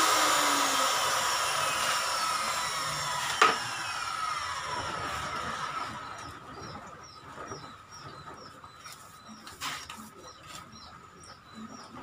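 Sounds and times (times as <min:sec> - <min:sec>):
small bird chirping: 0:06.0 - 0:12.0.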